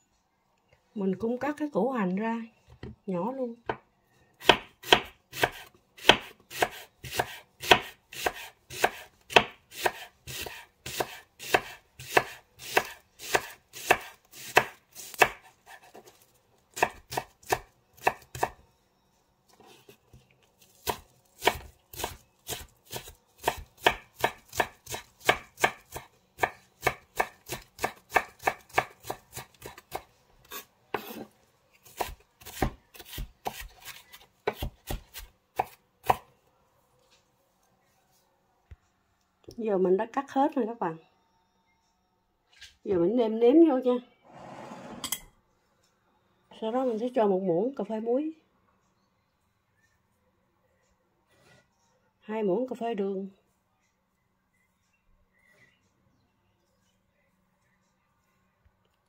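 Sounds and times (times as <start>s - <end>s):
knife chopping on wooden board: 4.4s - 16.0s, 20.8s - 30.0s, 31.9s - 36.2s.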